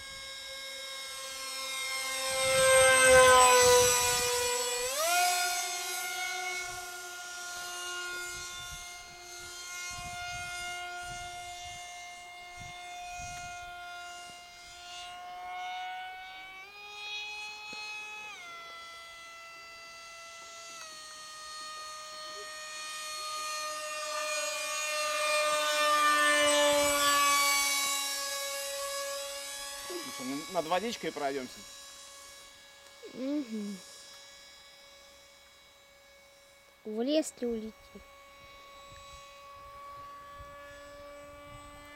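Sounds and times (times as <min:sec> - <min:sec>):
model jet motor whine: 0:00.0 - 0:41.9.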